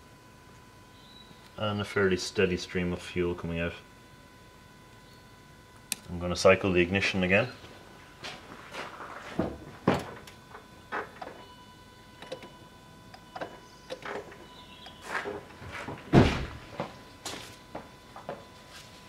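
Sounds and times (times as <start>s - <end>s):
fuel pump high whine: 0.0s - 19.0s
sharp clicks and knocks: 13.1s - 15.4s.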